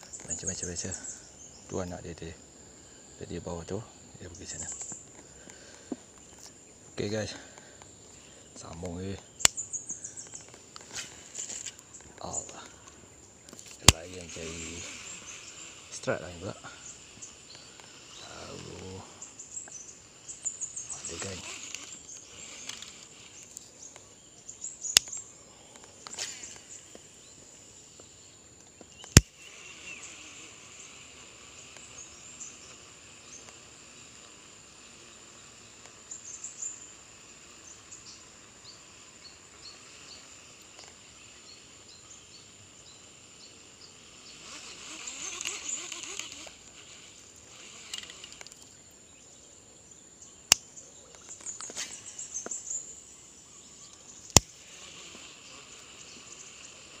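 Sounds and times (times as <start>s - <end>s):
bird chirps: 0.0s - 57.0s
high insect drone: 0.0s - 57.0s
sharp clicks: 4.4s - 19.0s, 19.6s - 24.1s, 24.9s - 27.1s, 28.0s - 30.1s, 44.4s - 48.8s, 50.4s - 52.8s, 53.9s - 56.3s.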